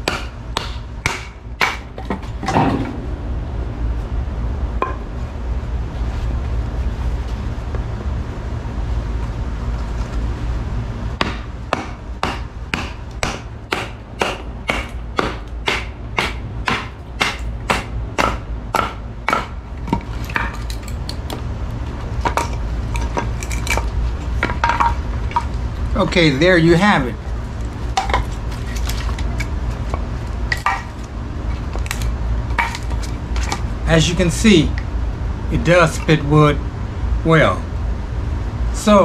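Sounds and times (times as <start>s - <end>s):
baton striking knife spine: 11.2s - 20.6s.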